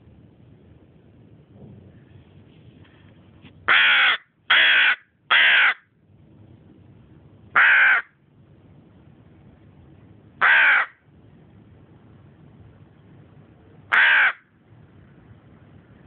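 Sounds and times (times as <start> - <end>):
crow cawing: 3.7 - 5.9, 7.6 - 8.2, 10.4 - 11.0, 13.9 - 14.5.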